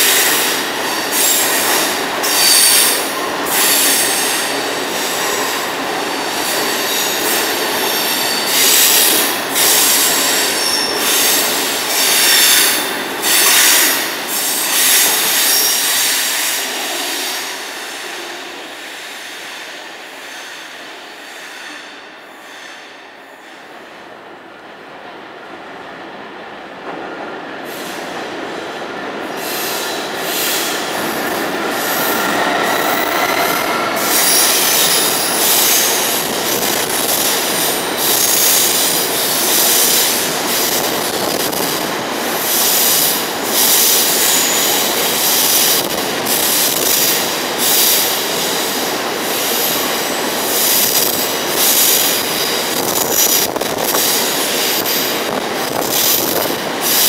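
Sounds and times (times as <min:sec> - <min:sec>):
train wheels squealing and clattering: 0:00.0 - 0:23.8, 0:27.7 - 0:57.0
diesel locomotive running: 0:29.0 - 0:48.2.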